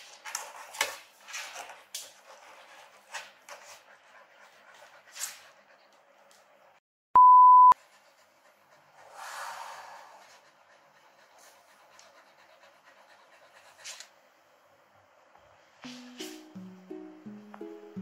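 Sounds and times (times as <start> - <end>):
dog panting: 1.4 - 6.8, 7.8 - 14.2
electronic beep: 7.2 - 7.8.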